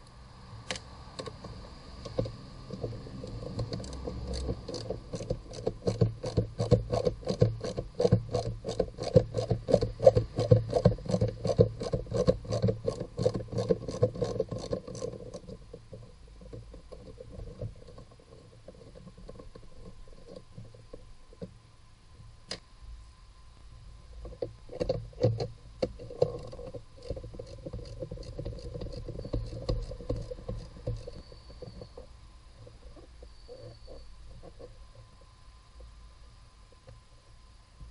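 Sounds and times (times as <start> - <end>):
hand ratchet clicking: 0.7 - 15.6, 24.8 - 31.8.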